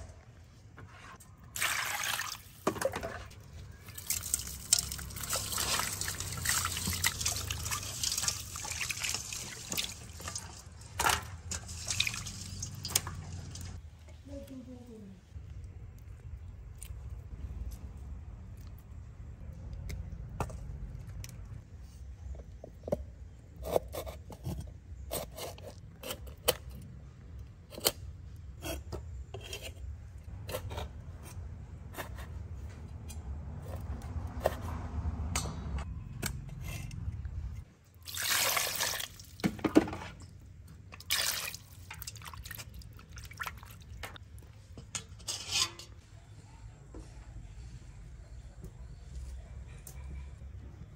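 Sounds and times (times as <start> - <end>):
handling in wet steel bowl: 1.0 - 13.8, 38.0 - 46.0
splashing water: 1.6 - 13.8, 38.0 - 39.4, 41.0 - 44.2.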